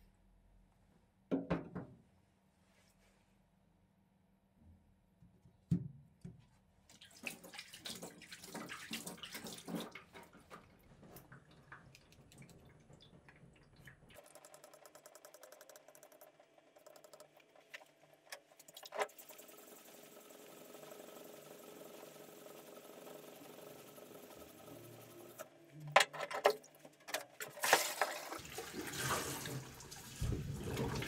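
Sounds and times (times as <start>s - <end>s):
water splashing: 6.9s - 14.0s
faint hum with fine ticking: 11.1s - 26.0s.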